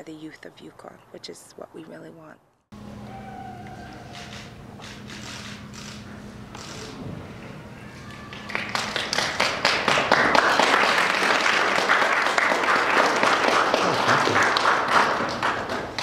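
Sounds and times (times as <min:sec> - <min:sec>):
audience applauding: 0:08.1 - 0:16.0.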